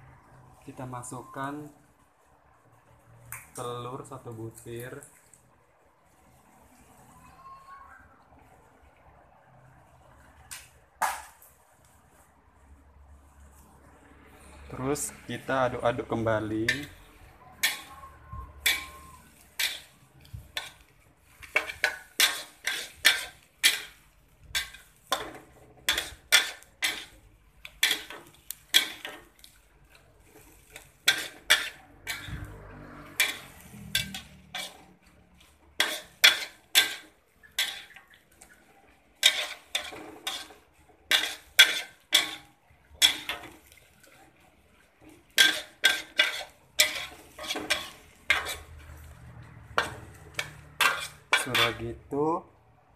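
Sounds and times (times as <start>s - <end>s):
spatula scraping a wok: 12.1s - 52.1s.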